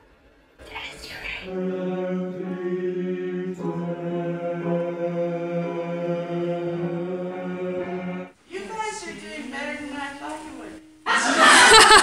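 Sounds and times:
men singing low drone: 0:01.4 - 0:08.3.

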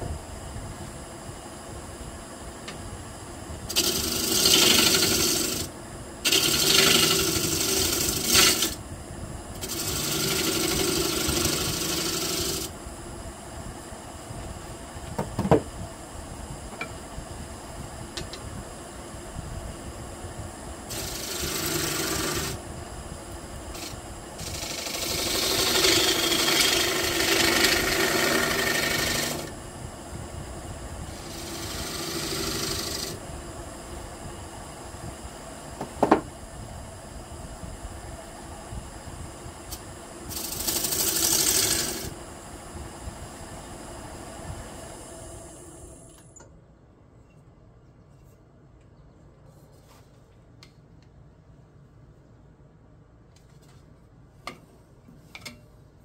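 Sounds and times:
chisel cutting spinning wood: 0:03.7 - 0:08.8, 0:09.6 - 0:12.8, 0:20.9 - 0:22.6, 0:23.7 - 0:29.6, 0:31.0 - 0:33.2, 0:40.3 - 0:42.2
wood lathe humming: 0:03.7 - 0:08.8, 0:09.6 - 0:12.8, 0:20.9 - 0:22.6, 0:23.7 - 0:29.6, 0:31.0 - 0:33.2, 0:40.3 - 0:42.2.

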